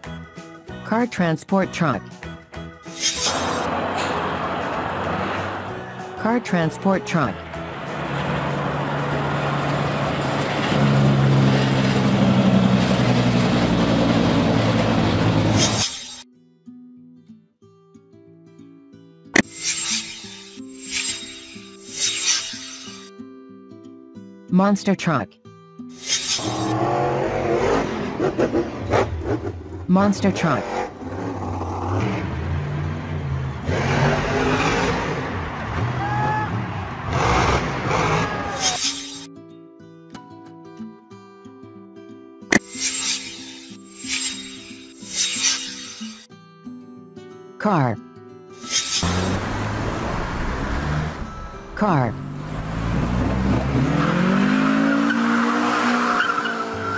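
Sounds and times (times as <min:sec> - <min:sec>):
road and tyre noise: 0:02.9 - 0:16.2, 0:26.0 - 0:39.3, 0:48.6 - 0:56.9
truck diesel engine driving by: 0:03.4 - 0:06.2, 0:07.0 - 0:15.7, 0:30.7 - 0:38.6, 0:49.0 - 0:54.9.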